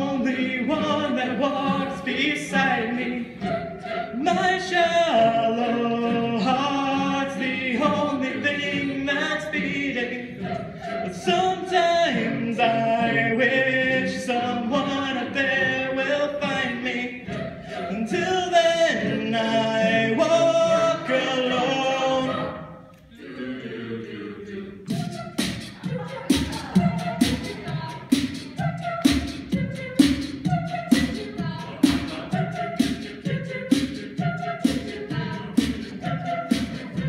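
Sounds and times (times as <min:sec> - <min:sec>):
a cappella choir singing: 0:00.0 - 0:37.0.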